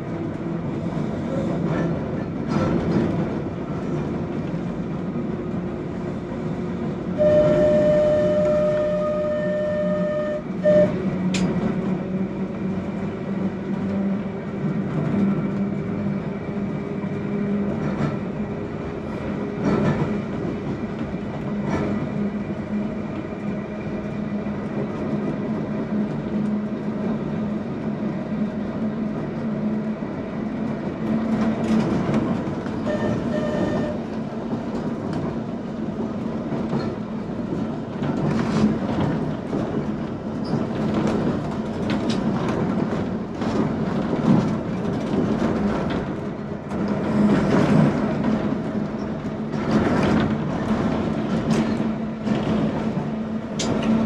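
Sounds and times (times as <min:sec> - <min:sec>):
tram motor hum: 0:00.0 - 0:54.0
tram horn: 0:07.1 - 0:11.4, 0:32.8 - 0:34.2.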